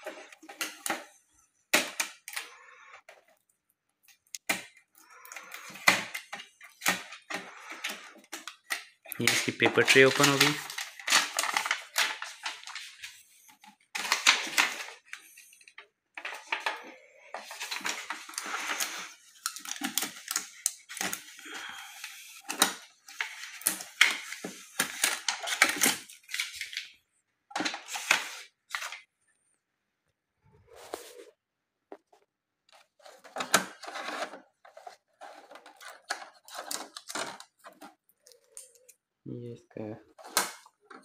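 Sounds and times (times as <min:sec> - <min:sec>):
paper sheet rustling: 0:05.6 - 0:26.9, 0:27.6 - 0:29.1, 0:30.7 - 0:31.3, 0:31.9 - 0:38.0.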